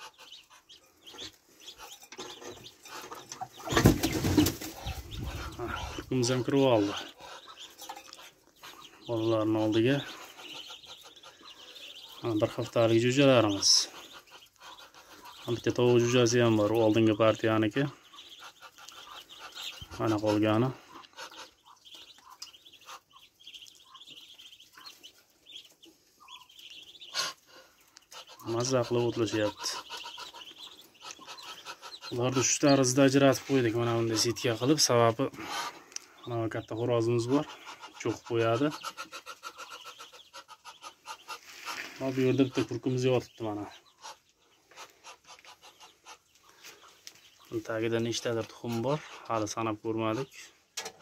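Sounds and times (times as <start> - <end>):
ducklings peeping: 0.0 - 51.0
duck wings flapping: 3.7 - 5.5.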